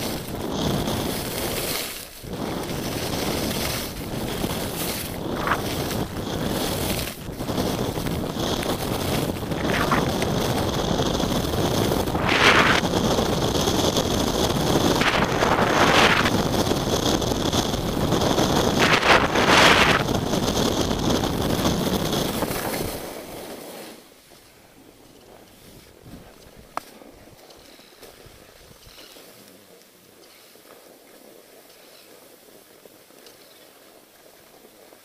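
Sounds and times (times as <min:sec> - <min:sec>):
wind on microphone: 0:00.0 - 0:23.5, 0:25.3 - 0:29.0
ski swishes: 0:00.0 - 0:29.5
skis hissing through snow: 0:00.0 - 0:29.5, 0:30.2 - 0:35.0.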